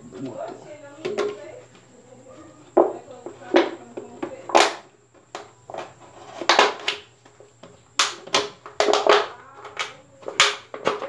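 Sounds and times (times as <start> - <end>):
plastic bottle crackling: 8.0 - 11.0.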